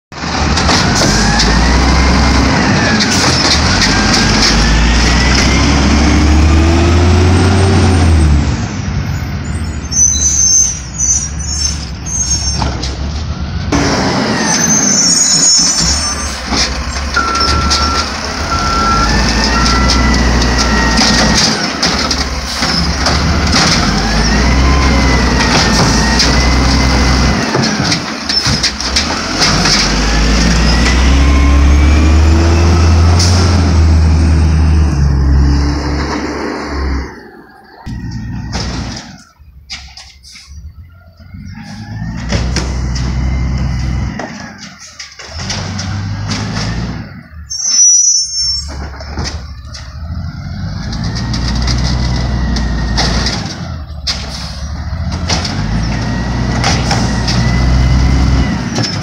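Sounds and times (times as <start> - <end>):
garbage truck engine revving: 0.1 - 48.0, 48.6 - 59.0
short beeps: 17.2 - 20.1.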